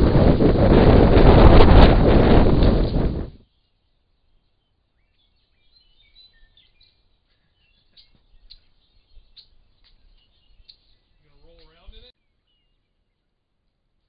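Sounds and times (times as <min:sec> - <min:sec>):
bird chirps and whistles: 0:05.0 - 0:07.0.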